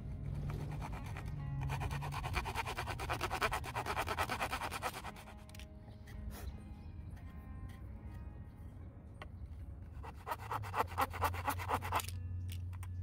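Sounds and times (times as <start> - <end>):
background music: 0.0 - 13.0
hand saw cutting wood: 0.4 - 5.4, 10.0 - 12.1.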